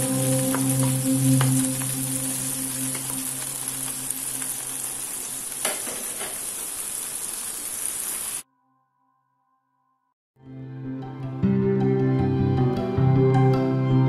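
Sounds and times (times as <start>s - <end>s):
food deep-frying in oil: 0.0s - 8.4s.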